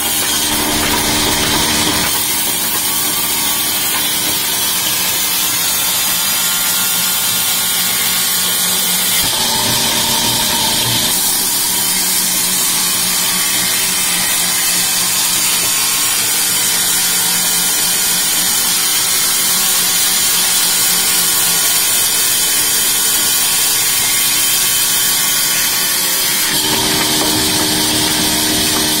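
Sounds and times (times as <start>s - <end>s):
band saw machine hum: 0.0s - 8.1s, 8.9s - 13.7s, 24.0s - 29.0s.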